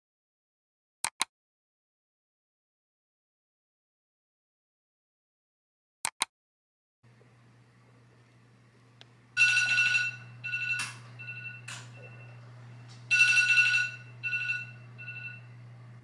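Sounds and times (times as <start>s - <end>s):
smartphone alarm tone: 9.4s - 15.5s.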